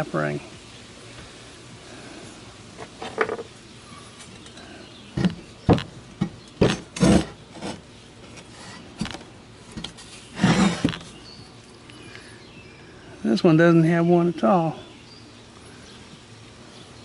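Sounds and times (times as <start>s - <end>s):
metal parts knocking on workbench: 3.0s - 3.5s.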